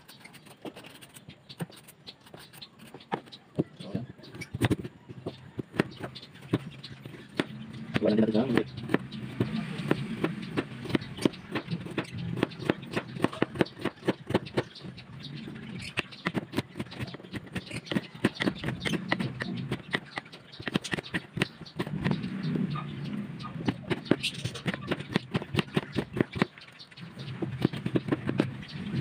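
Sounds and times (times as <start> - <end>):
knife chopping on cutting board: 7.3 - 14.6.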